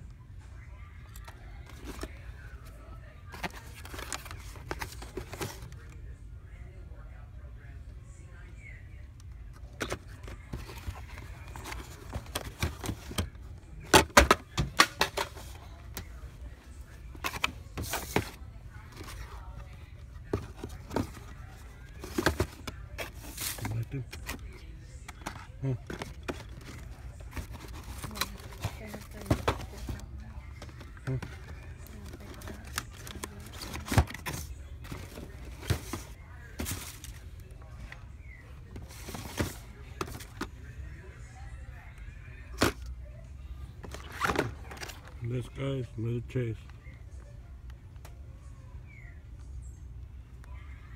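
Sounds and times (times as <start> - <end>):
box handling noise: 1.1 - 6.0, 9.5 - 40.7, 43.7 - 45.2
toy car packages clattering: 9.8 - 15.8, 20.0 - 37.4, 38.7 - 40.5.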